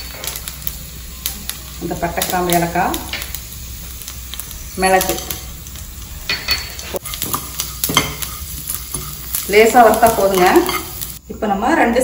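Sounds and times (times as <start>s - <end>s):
faint sizzle: 0.0s - 12.0s
metal spoon scraping a pan: 6.3s - 11.2s.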